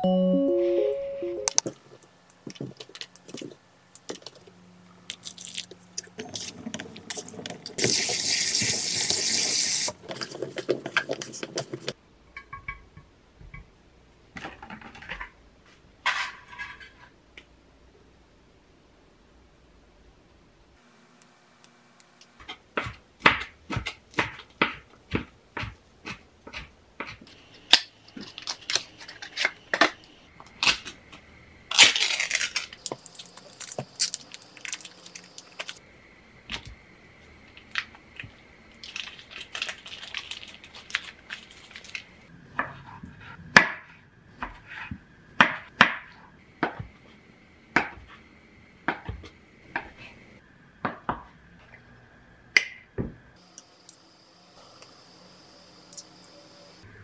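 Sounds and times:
knife chopping on wooden board: 0:22.4 - 0:27.2
foil wrapper crinkling: 0:28.2 - 0:29.5, 0:31.7 - 0:35.8, 0:38.7 - 0:42.2.

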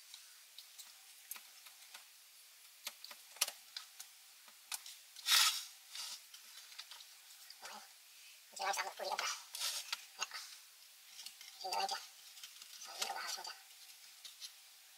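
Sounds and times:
short scrape or rustle: 0:05.2 - 0:06.4, 0:09.5 - 0:09.9.

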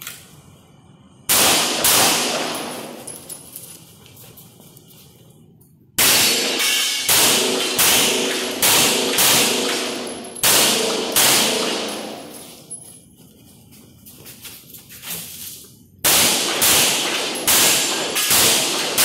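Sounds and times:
handgun shots echoing: 0:06.0 - 0:12.6, 0:16.1 - 0:19.0.

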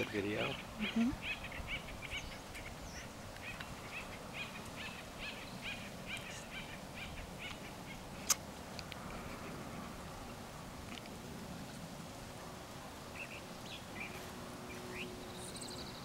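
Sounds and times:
bird chirping: 0:00.0 - 0:08.4, 0:13.1 - 0:16.0.

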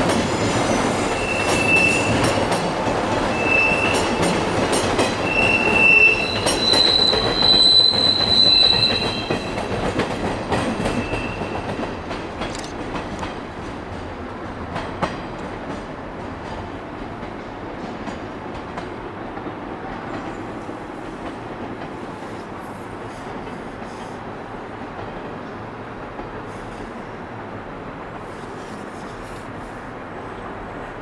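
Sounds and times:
train wheel squeal: 0:00.0 - 0:02.5, 0:03.3 - 0:12.0
train wheels clacking over rail joints: 0:00.0 - 0:27.0.

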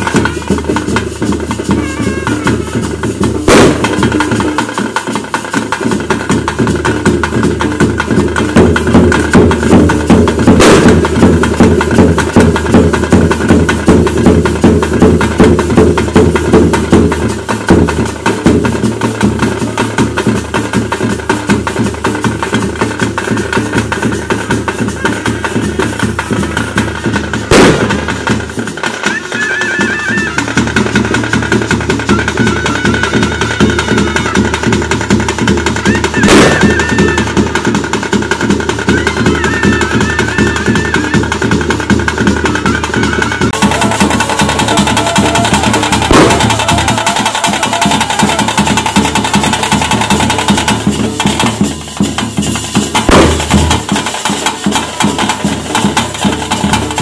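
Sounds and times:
fast dense drumming: 0:00.0 - 0:57.0
sharp bangs: 0:03.4 - 0:04.3, 0:10.5 - 0:11.2, 0:27.5 - 0:28.5, 0:36.2 - 0:37.1, 0:46.0 - 0:46.9, 0:53.0 - 0:54.0.

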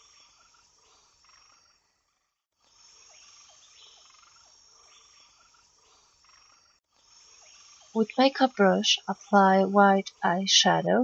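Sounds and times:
faint repeating chirping: 0:02.7 - 0:11.0.

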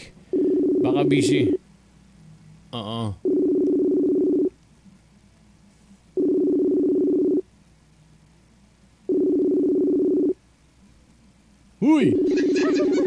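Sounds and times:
phone ringback tone: 0:00.3 - 0:01.6, 0:03.2 - 0:04.5, 0:06.2 - 0:07.4, 0:09.1 - 0:10.4, 0:12.0 - 0:13.0.

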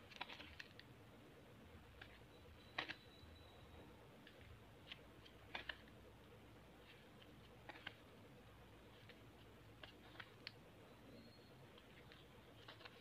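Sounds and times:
cardboard book pages turning: 0:00.0 - 0:00.9, 0:04.2 - 0:06.0, 0:06.8 - 0:08.2, 0:08.8 - 0:10.6, 0:11.7 - 0:13.0.

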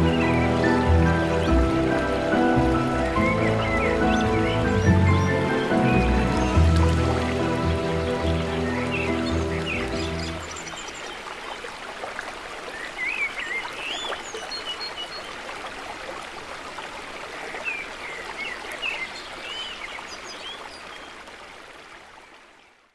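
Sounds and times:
bird singing warbling phrases: 0:00.0 - 0:11.7
stream pouring over rocks: 0:00.0 - 0:22.9.

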